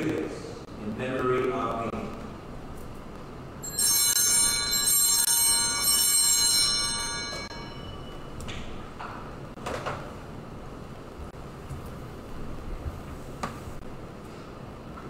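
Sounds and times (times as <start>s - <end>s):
altar bells ringing: 3.6s - 9.0s.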